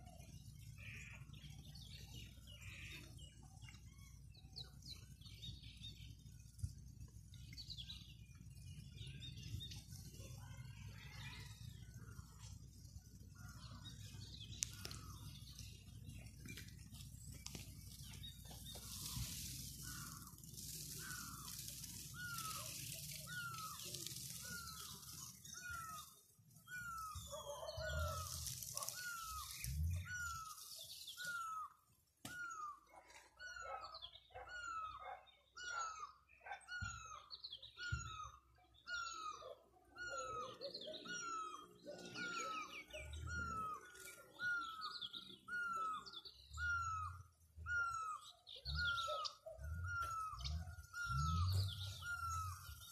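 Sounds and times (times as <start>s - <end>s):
birds chirping: 0.0s - 52.9s
rustling hiss: 14.4s - 27.1s, 27.8s - 31.6s.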